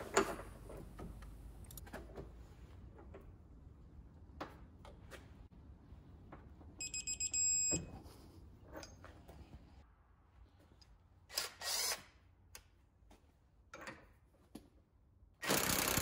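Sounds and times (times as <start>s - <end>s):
steady beep: 6.8s - 7.8s.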